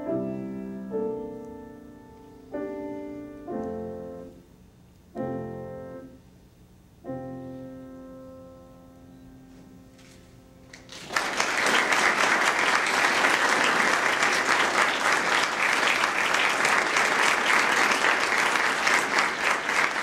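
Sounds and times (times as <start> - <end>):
piano chord: 0.0 - 4.4, 5.2 - 6.2, 7.0 - 10.7
audience applause: 10.7 - 20.0.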